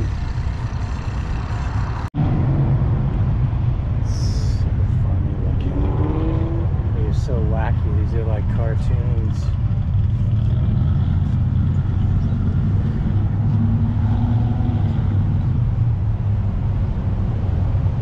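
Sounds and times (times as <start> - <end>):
car engines rumbling: 0.0 - 18.0
traffic going past: 0.0 - 18.0.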